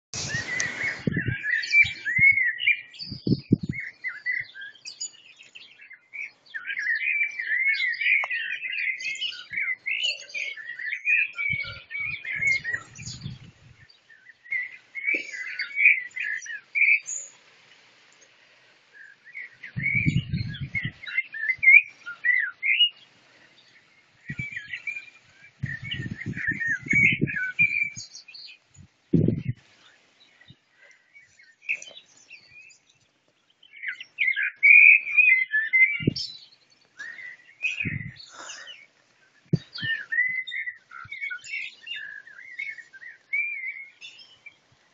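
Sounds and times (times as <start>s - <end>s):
songbirds singing: 0.1s - 44.9s.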